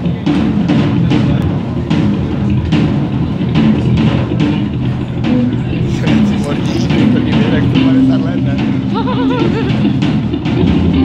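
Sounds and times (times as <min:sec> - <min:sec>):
drum kit beat: 0:00.0 - 0:11.0
electric guitars: 0:00.0 - 0:11.0
live band playing: 0:00.0 - 0:11.0
saxophones: 0:04.8 - 0:10.2.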